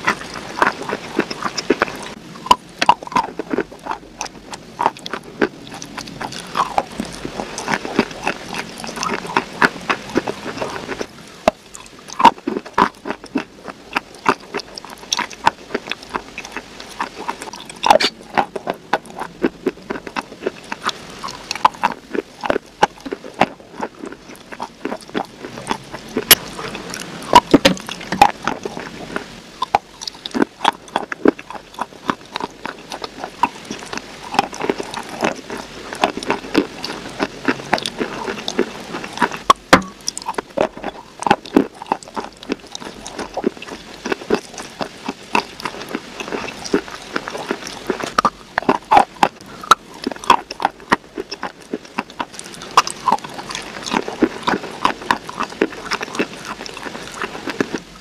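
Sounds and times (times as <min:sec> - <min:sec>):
crunchy chewing: 0:00.0 - 0:58.0
wet mouth clicks: 0:00.0 - 0:58.0.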